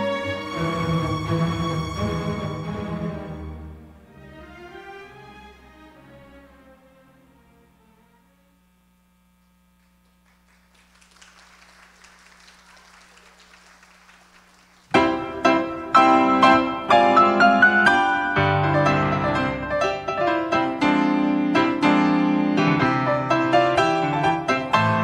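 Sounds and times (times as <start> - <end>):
string music: 0.0 - 8.6, 14.9 - 25.0
solo piano music: 14.9 - 25.0.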